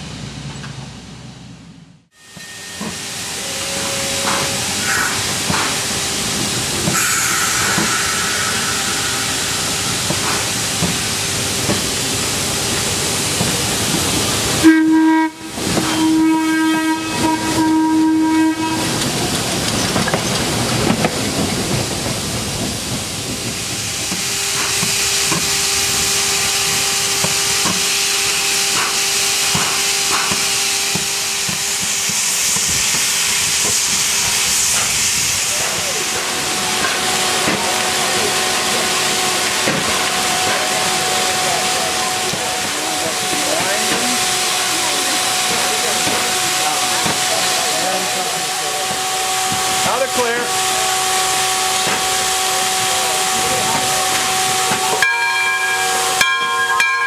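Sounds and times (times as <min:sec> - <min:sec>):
electric rail car passing: 0:00.0 - 0:57.0
steam locomotive whistle: 0:02.1 - 0:06.0, 0:06.8 - 0:10.6, 0:14.6 - 0:19.2, 0:35.4 - 0:57.0
steam hissing: 0:02.1 - 0:57.0.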